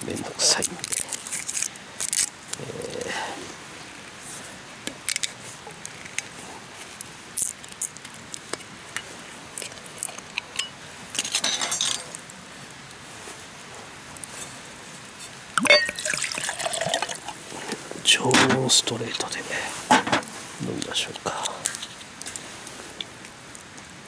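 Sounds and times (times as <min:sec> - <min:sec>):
wood fire crackling: 0:00.0 - 0:24.0
glass bottle clinking: 0:11.4 - 0:12.1, 0:15.6 - 0:17.3.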